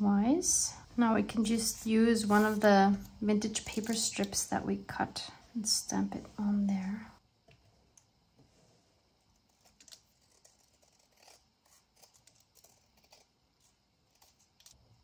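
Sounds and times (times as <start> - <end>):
small scissors snipping paper: 9.4 - 14.8.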